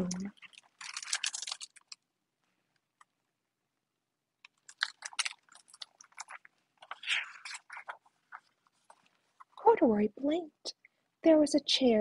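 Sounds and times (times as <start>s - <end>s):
book pages rustling: 0.2s - 2.0s, 4.5s - 9.6s.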